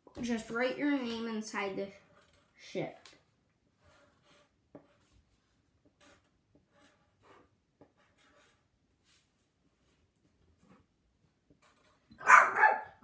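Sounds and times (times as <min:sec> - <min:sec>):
marker writing on paper: 0:03.8 - 0:09.2.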